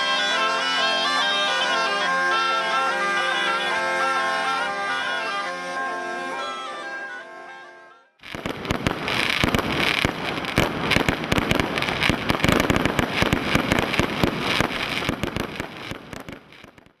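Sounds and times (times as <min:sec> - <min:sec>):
fireworks bangs and crackle: 0:08.2 - 0:17.0.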